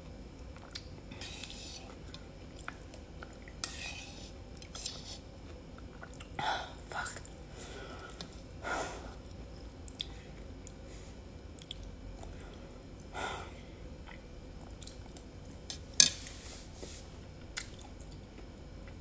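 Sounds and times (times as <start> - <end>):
person chewing soup: 0.4 - 3.6, 4.2 - 6.4, 9.2 - 10.8, 11.5 - 13.1, 14.0 - 15.8.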